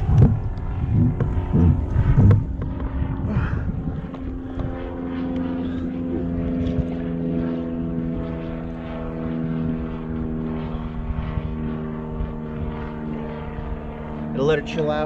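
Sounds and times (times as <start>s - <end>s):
engine drone: 0.0s - 15.0s
wind rumbling on microphone: 0.0s - 15.0s.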